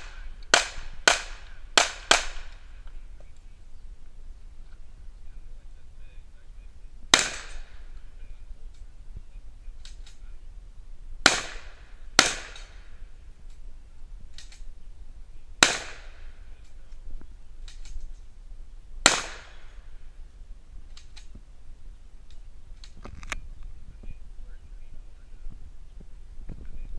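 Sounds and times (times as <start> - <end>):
handgun shots echoing: 0.0 - 2.6, 7.1 - 7.8, 11.2 - 12.8, 15.6 - 16.2, 19.0 - 19.7
distant gunshot pops: 7.1 - 7.9, 11.2 - 12.9, 15.6 - 16.2, 19.0 - 19.7.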